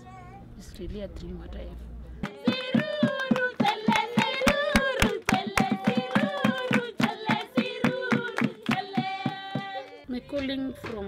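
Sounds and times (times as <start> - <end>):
group singing: 2.2 - 11.0
rhythmic hand clapping: 2.2 - 11.0.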